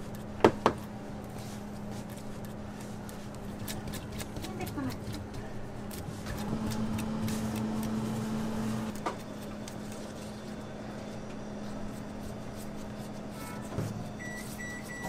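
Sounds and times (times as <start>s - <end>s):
low machine hum: 0.0s - 15.0s
spatula scraping frosting: 1.3s - 10.6s.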